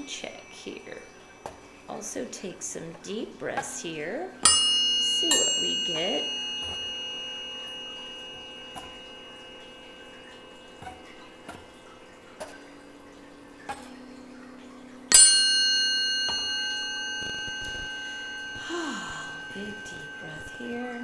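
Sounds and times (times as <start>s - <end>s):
tuning forks ringing: 0.0s - 21.0s.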